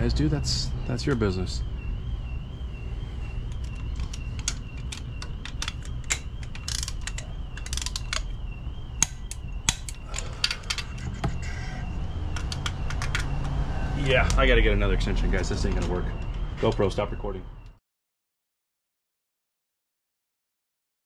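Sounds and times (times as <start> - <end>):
hand ratchet clicking: 3.5 - 8.4, 9.0 - 11.1
metal socket knocking against bolts: 3.5 - 8.4, 9.0 - 11.4, 12.3 - 13.6.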